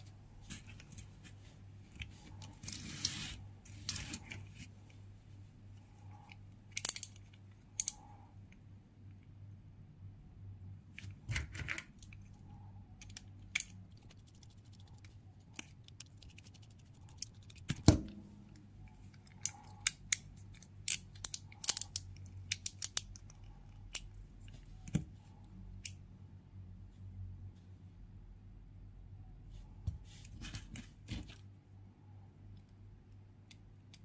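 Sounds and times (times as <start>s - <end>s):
small metal clicks and taps: 6.2s - 8.0s, 19.1s - 25.0s.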